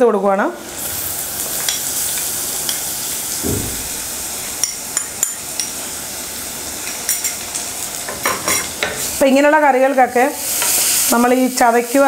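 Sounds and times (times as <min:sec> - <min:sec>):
food sizzling in hot oil: 0:00.6 - 0:12.0.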